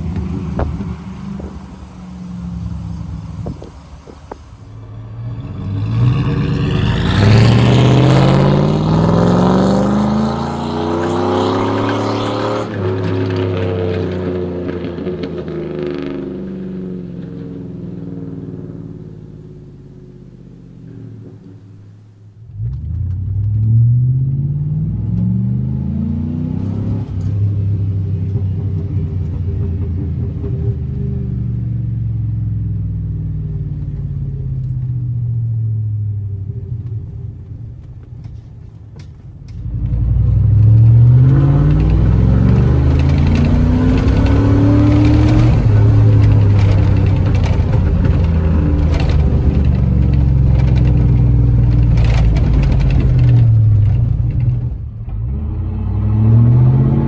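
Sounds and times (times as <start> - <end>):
truck engine exhaust accelerating: 0.0 - 57.0.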